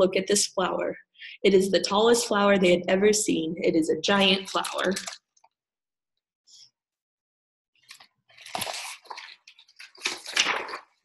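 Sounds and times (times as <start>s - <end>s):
paper page rustling: 4.2s - 5.3s, 7.8s - 11.0s.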